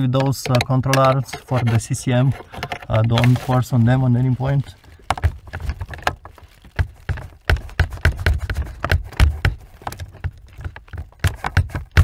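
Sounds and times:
screwdriver clicking and tapping: 0:00.2 - 0:01.3.

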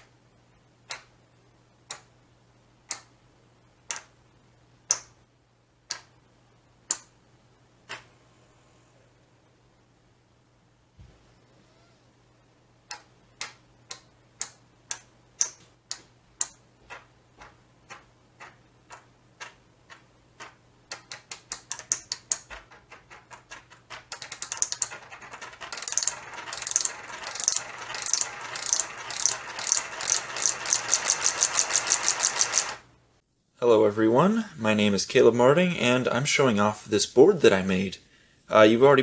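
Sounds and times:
solenoids clicking: 0:12.8 - 0:32.9.

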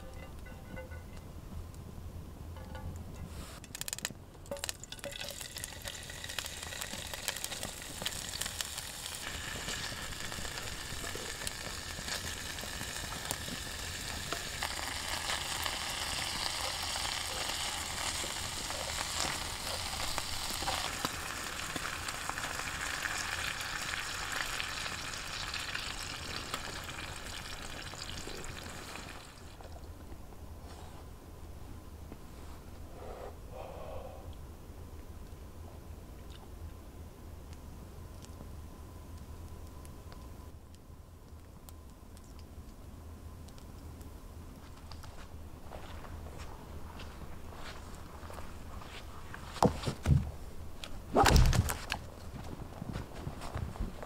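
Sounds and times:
meat sizzling in a pan: 0:05.4 - 0:29.5.

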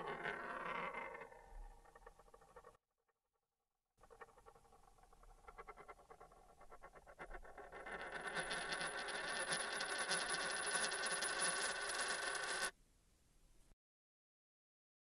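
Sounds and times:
coin spinning rattle: 0:00.0 - 0:02.7, 0:04.0 - 0:12.7.

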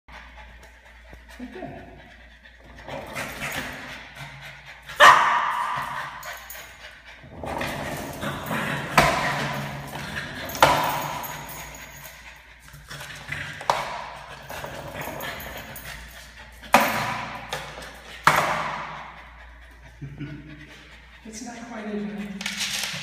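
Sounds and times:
dog barking: 0:05.0 - 0:06.0
skateboard wheels rumbling on tile: 0:07.2 - 0:10.8.

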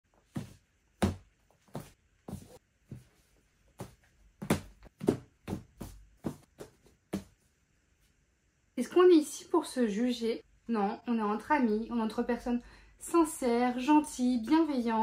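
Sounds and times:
books thudding onto a stack: 0:03.8 - 0:07.3.

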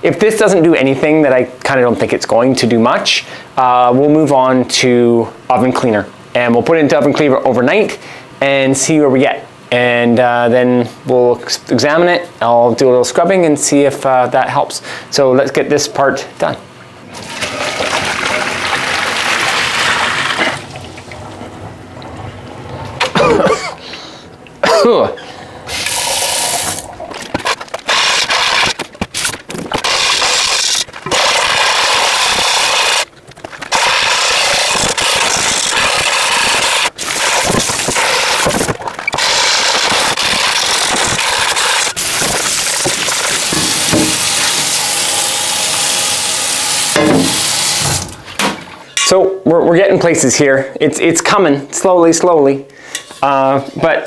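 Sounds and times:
liquid splashing into sink: 0:17.1 - 0:22.2, 0:37.0 - 0:48.8
running tap water: 0:17.1 - 0:22.4, 0:25.7 - 0:27.3, 0:29.8 - 0:33.1, 0:33.7 - 0:48.2
scrubbing inside pot: 0:25.7 - 0:45.5.

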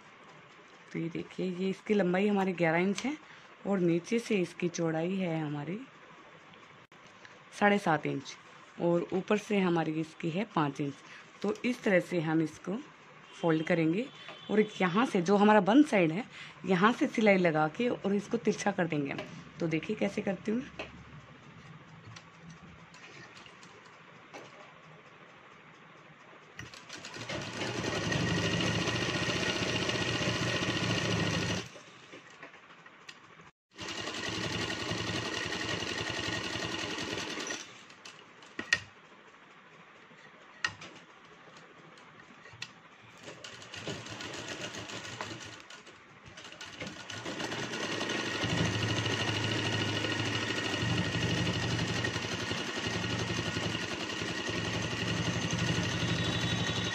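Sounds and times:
sewing machine stitching: 0:26.6 - 0:31.7, 0:33.8 - 0:37.8, 0:43.2 - 0:56.9.

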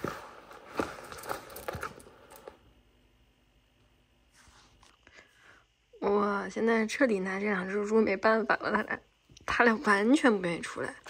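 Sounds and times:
faint rustles in cardboard box: 0:04.2 - 0:05.0.

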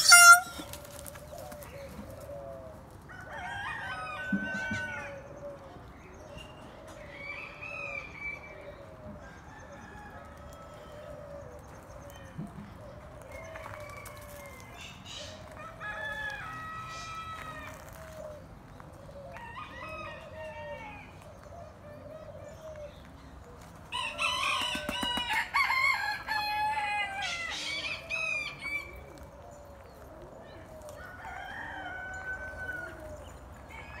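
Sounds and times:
roosters crowing: 0:00.0 - 0:05.4, 0:13.2 - 0:18.5, 0:19.1 - 0:21.4, 0:23.8 - 0:29.8, 0:30.6 - 0:34.0.

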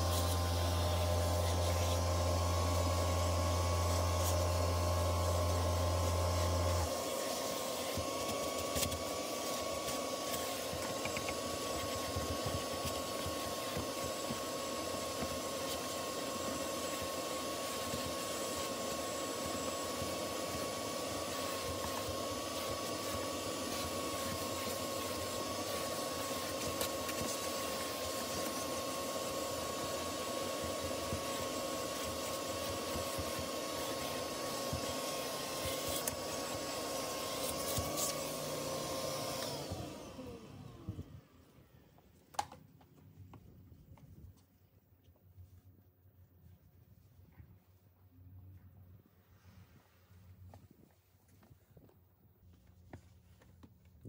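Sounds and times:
carpet extractor motor whine: 0:00.0 - 0:42.6.

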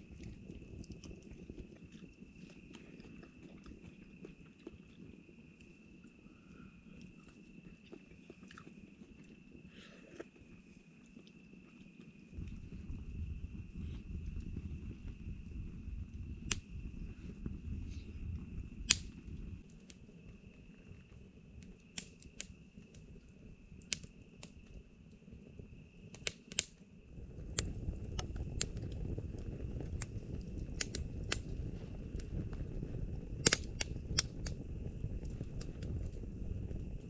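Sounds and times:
campfire crackling: 0:00.0 - 0:37.0
low rumble of flame: 0:00.0 - 0:37.0
burning wood popping: 0:12.4 - 0:25.3, 0:26.0 - 0:37.0.

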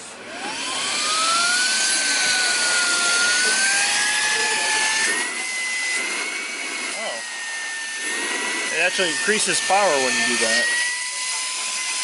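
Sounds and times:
vacuum cleaner motor whining: 0:00.0 - 0:12.0.

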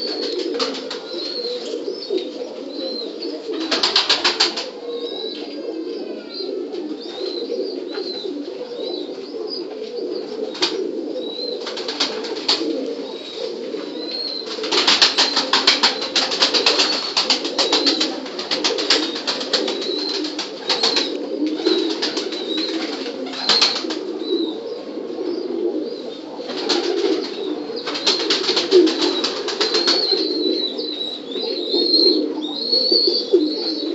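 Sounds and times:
pigeons cooing: 0:00.0 - 0:33.9
wings flapping: 0:03.6 - 0:04.7, 0:11.6 - 0:12.7, 0:14.5 - 0:24.0, 0:26.5 - 0:30.3.

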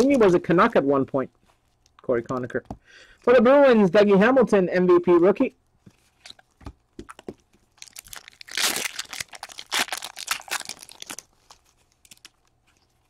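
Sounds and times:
foil wrapper crinkling and tearing: 0:07.1 - 0:13.0.

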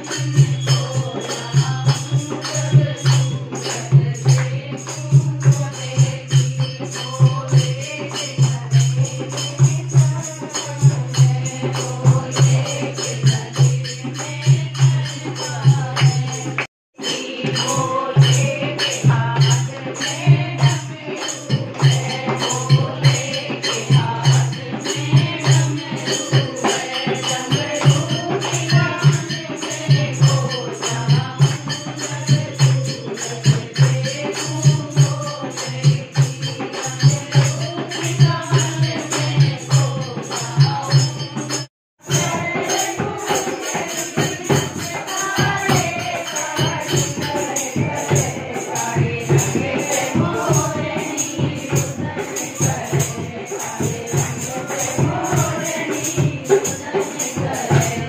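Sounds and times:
jingling percussion: 0:00.0 - 0:58.0
singing voices: 0:00.0 - 0:58.0
steady rhythmic beat: 0:42.1 - 0:58.0.

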